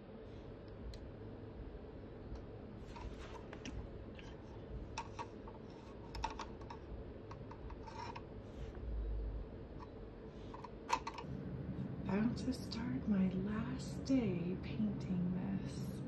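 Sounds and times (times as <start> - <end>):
brush handles knocking plastic cups: 2.9 - 8.3.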